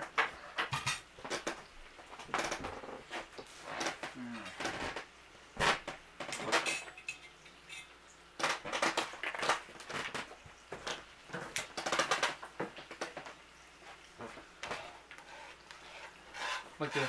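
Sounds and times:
kitchen utensils and dishes clattering: 0.0 - 1.7, 5.6 - 13.2.

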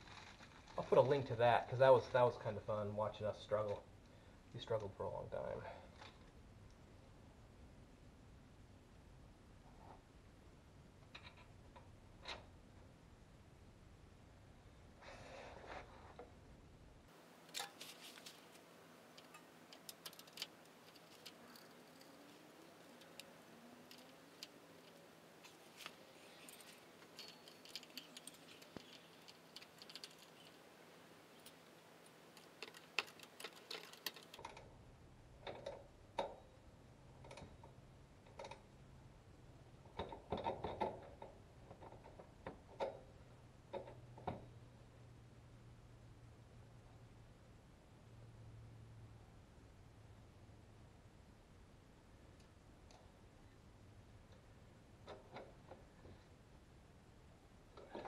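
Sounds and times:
hand tools clinking on metal: 19.1 - 30.6.

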